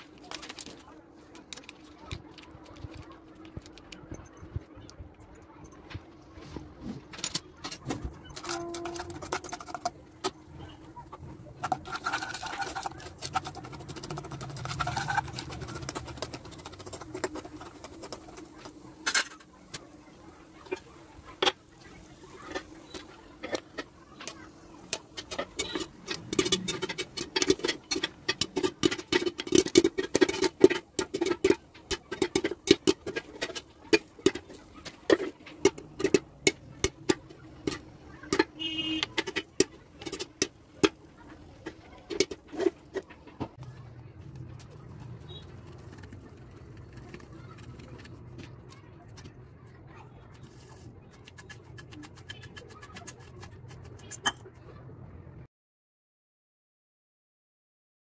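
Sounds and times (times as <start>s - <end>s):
metal spoon scraping kernels: 7.2s - 10.4s, 11.2s - 43.2s, 44.4s - 49.4s, 50.3s - 54.6s
popcorn popping in a covered pan: 7.2s - 54.6s.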